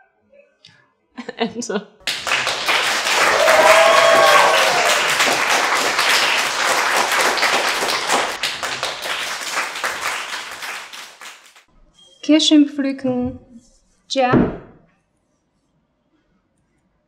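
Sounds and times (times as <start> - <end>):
audience applauding: 2.0 - 11.7.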